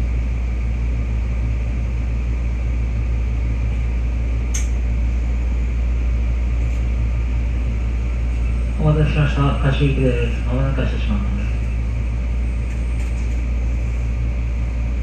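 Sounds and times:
train equipment hum and whir: 0.0s - 15.0s
sharp click: 4.5s - 4.8s.

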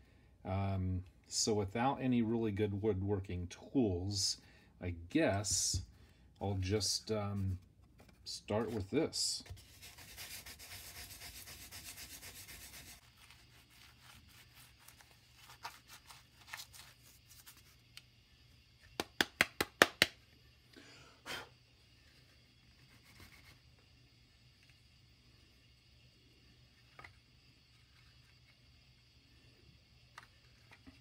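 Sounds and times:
sandpaper rubbing on wood: 9.5s - 17.7s.

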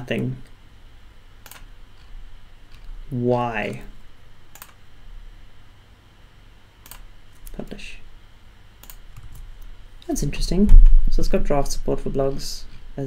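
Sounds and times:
computer mouse clicks: 1.4s - 2.1s, 4.5s - 4.8s, 6.8s - 7.6s, 8.8s - 9.4s.

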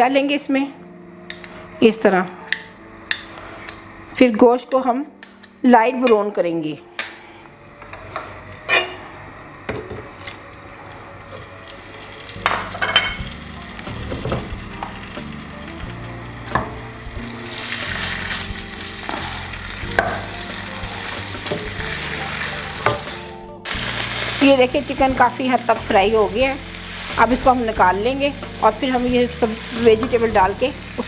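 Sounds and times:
chicken sizzling in pan: 10.1s - 31.0s.

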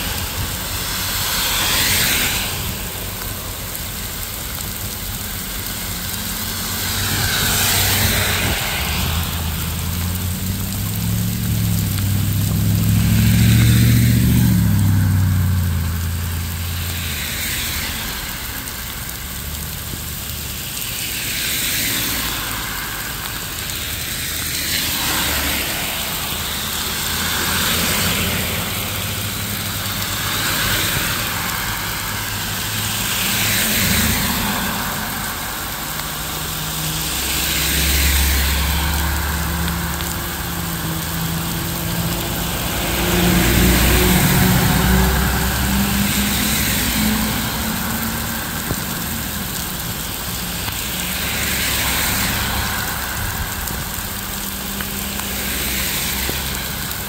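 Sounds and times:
car engine hum: 0.0s - 20.9s
tyre hiss on wet road: 0.0s - 57.0s.

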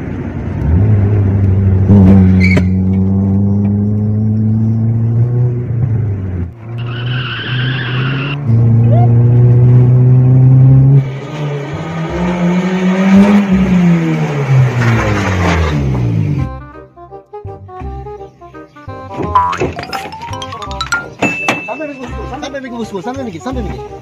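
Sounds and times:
car engine revving: 0.4s - 16.6s
tyres skidding: 0.6s - 10.4s, 12.8s - 16.6s
tyres squealing: 6.8s - 8.4s.

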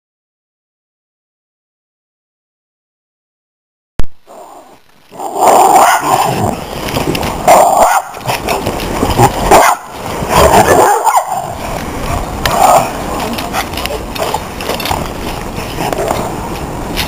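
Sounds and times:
dogs growling and barking: 4.3s - 16.6s.

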